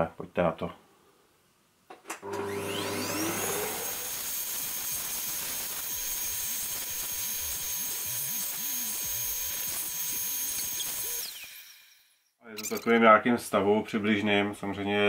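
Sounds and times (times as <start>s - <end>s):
vacuum cleaner motor whining: 2.2s - 11.9s.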